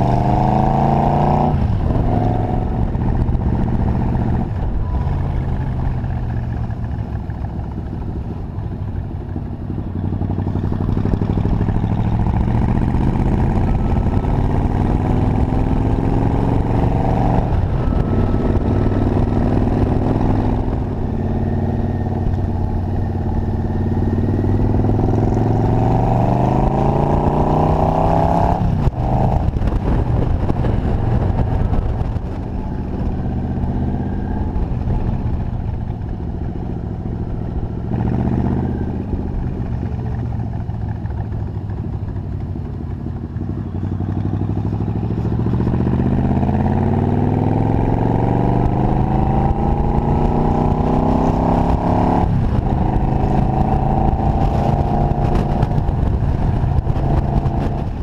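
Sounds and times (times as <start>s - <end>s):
motorcycle engine accelerating: 0.0s - 58.0s.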